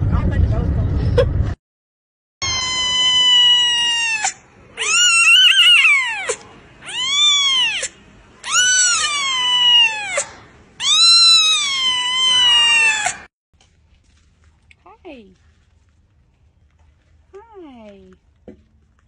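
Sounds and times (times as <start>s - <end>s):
kitten meowing: 2.4s - 13.3s.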